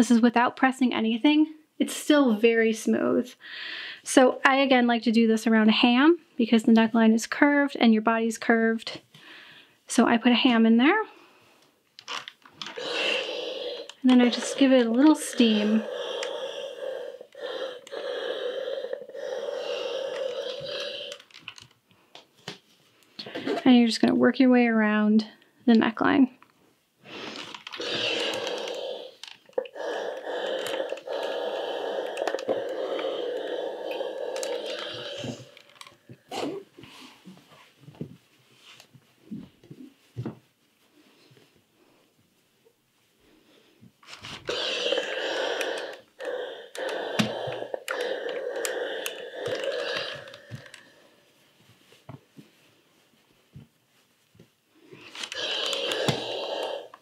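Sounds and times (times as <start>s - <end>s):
steam iron hissing: 12.8s - 21.2s, 27.2s - 35.6s, 55.0s - 57.0s.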